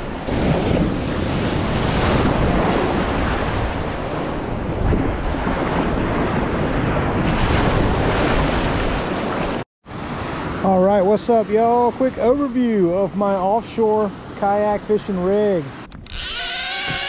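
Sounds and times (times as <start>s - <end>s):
wind buffeting microphone: 0.0s - 9.6s
ocean surf washing and hissing: 0.0s - 15.9s.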